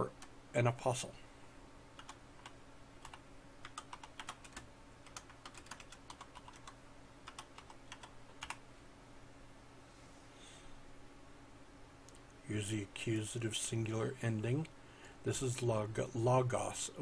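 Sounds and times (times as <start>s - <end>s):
steady low hum: 0.0s - 17.0s
typing on computer keyboard: 2.0s - 8.6s.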